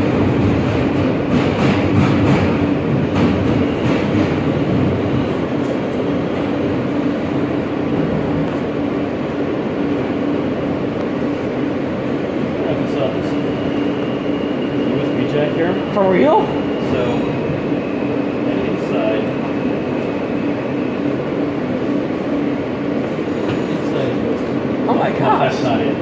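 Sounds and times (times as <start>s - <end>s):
rail clacks: 0.0s - 9.0s
subway car wheels rumbling on rail: 0.0s - 26.0s.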